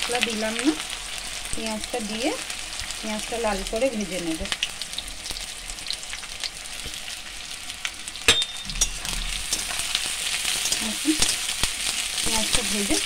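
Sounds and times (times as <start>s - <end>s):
onions sizzling in hot oil: 0.0s - 13.0s
spatula clinking against pan: 8.3s - 9.8s.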